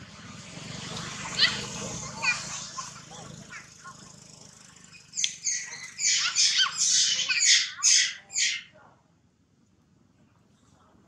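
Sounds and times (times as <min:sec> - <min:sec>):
monkey screaming: 0:01.2 - 0:03.8, 0:05.0 - 0:08.7.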